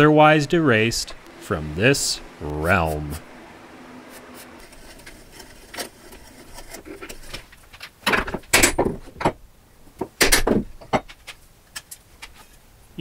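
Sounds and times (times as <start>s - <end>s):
chisel scraping wood: 4.1s - 7.6s.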